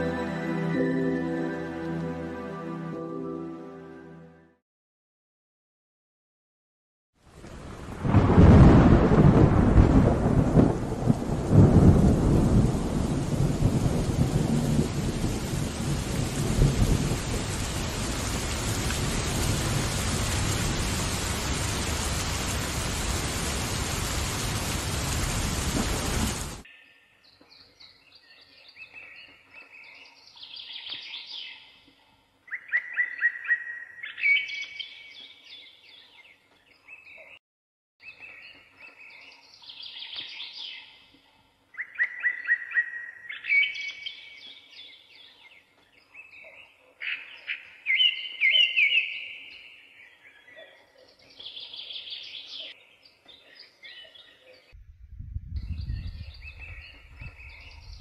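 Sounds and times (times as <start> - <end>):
songbirds chirping and trilling: 26.6 - 37.4, 38.0 - 54.8, 55.6 - 58.0.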